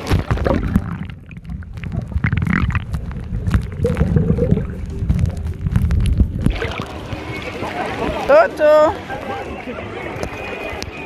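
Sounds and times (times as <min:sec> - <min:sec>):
muffled underwater gurgling: 0:00.0 - 0:08.4
water sloshes and knocks: 0:00.0 - 0:08.5.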